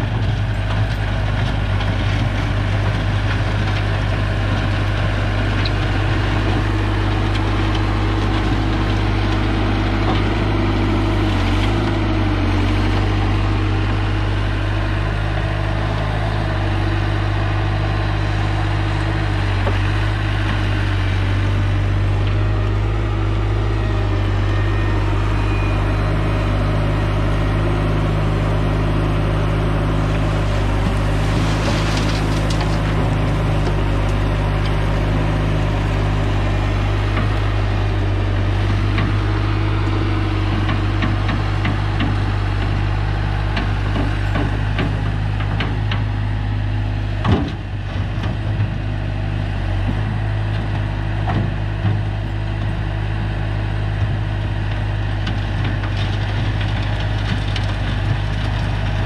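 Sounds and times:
steel bucket scraping asphalt: 0.0 - 45.4
loader engine running: 0.0 - 59.0.

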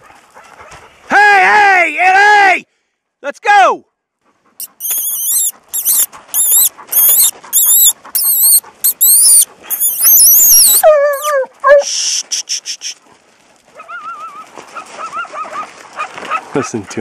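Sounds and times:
coyote barking: 4.6 - 11.9
coyote howling: 4.6 - 11.9
coyote yelping: 4.6 - 11.9.

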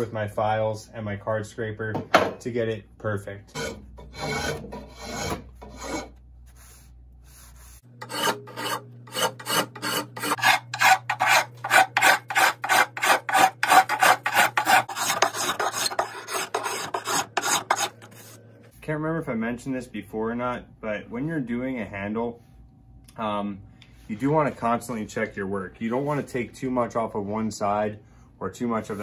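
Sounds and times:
rasp scraping wood: 3.5 - 18.4.

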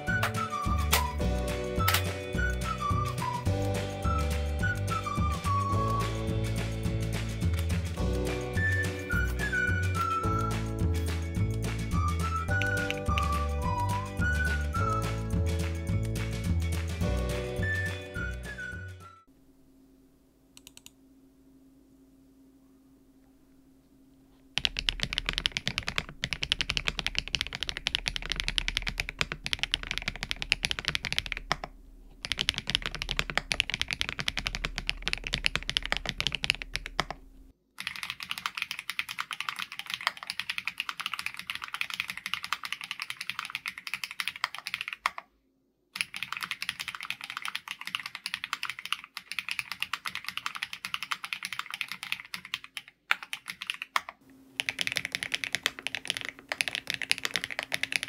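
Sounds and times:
fast mechanical keyboard typing: 24.6 - 37.2, 37.8 - 45.2, 46.0 - 58.0.

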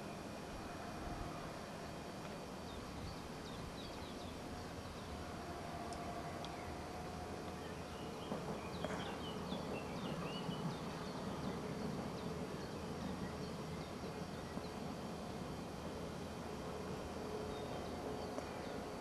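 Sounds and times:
faint outdoor ambience: 0.0 - 19.0
small birds chirping: 7.5 - 15.0.

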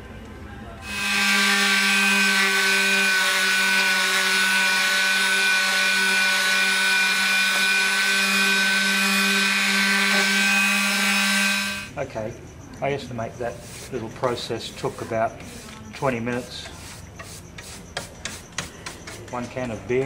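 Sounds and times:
electric sander sanding wood: 0.8 - 11.9.

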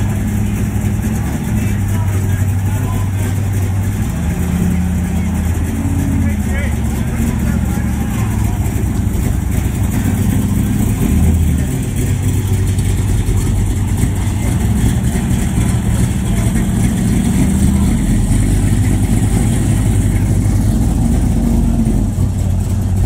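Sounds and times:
car engine idling loudly: 0.0 - 23.0.

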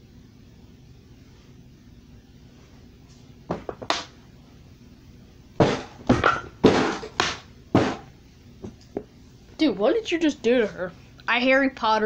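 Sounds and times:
loud thumps: 5.6 - 8.1.

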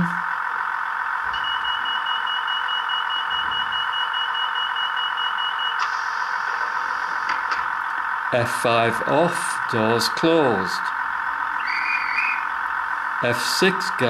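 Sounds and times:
rapid high door warning beeps: 0.0 - 6.4, 11.0 - 13.4
diesel engine idling: 0.0 - 14.0
hiss of doors opening: 5.8 - 7.6.

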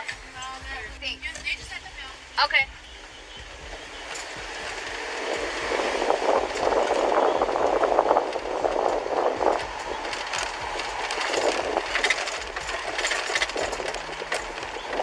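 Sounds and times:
light cabin rattling: 0.0 - 15.0
road and tyre noise: 0.0 - 15.0.

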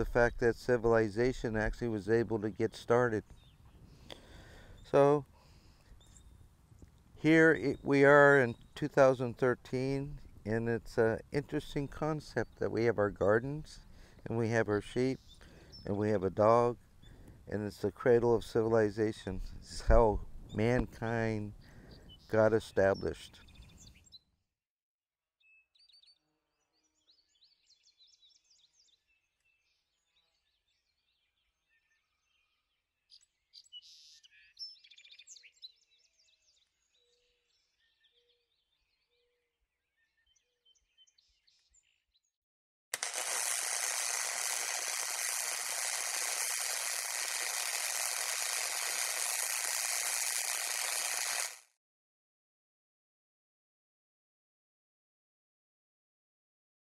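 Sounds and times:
birds chirping: 1.1 - 11.0, 11.6 - 24.2
loud steady hissing: 43.0 - 51.7.

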